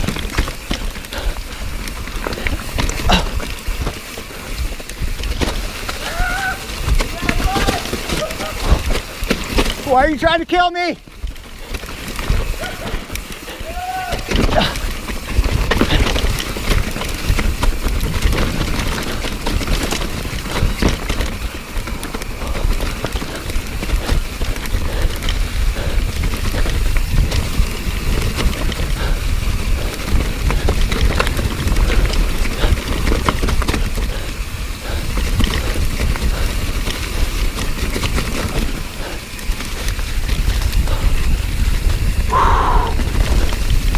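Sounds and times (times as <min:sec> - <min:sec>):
bike rattling over rocks: 0:00.0 - 0:43.9
tyres crunching through leaves: 0:00.0 - 0:43.9
wind rumble on microphone: 0:22.3 - 0:43.9.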